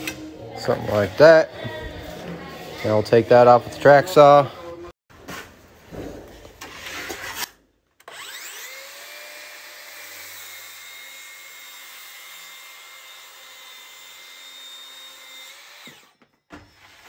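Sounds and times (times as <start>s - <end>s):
track saw whining: 7.3s - 17.0s.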